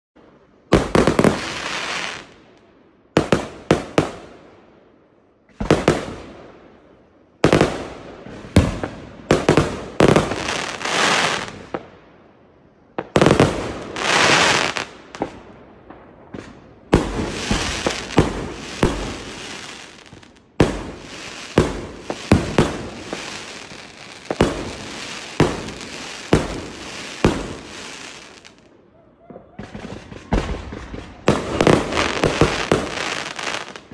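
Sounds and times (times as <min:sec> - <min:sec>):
firework crackle: 0:00.7 - 0:02.4, 0:07.4 - 0:11.8, 0:13.0 - 0:15.4, 0:16.4 - 0:28.7, 0:29.7 - 0:33.9
firework bangs: 0:13.0 - 0:28.6, 0:29.4 - 0:33.9.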